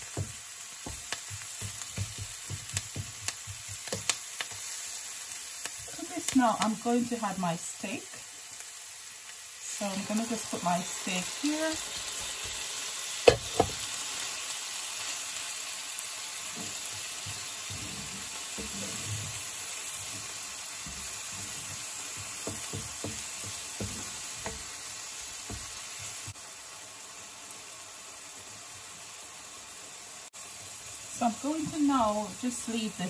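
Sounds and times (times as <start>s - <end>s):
wooden spatula scraping and knocking pan: 0.0s - 4.7s, 16.5s - 26.4s
steak and onions sizzling in a pan: 0.0s - 33.0s.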